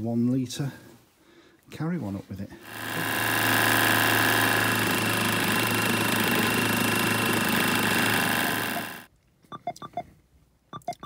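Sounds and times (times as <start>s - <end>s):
electric pump motor whining: 2.6s - 9.1s.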